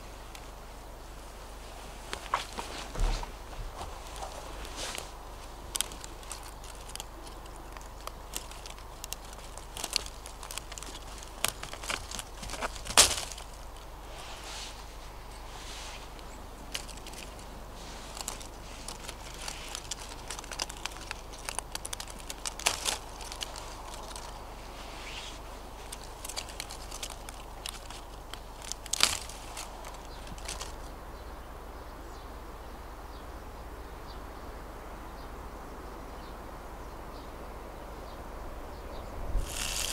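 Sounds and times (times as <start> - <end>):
holly leaves crinkling: 0.0 - 32.2, 38.9 - 39.9
stems snapping: 2.1 - 14.0, 15.3 - 30.9, 39.3 - 39.9.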